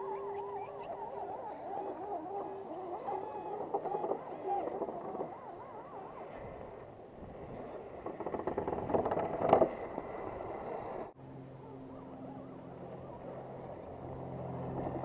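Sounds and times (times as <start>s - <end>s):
clicking clatter over rock: 7.6s - 11.1s.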